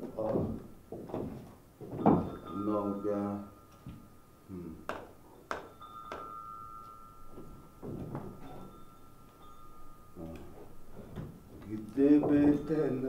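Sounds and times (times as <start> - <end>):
thin high ringing tone: 1.9 - 13.0
sharp ringing clicks: 2.0 - 13.0
low vocal sounds: 4.5 - 4.9.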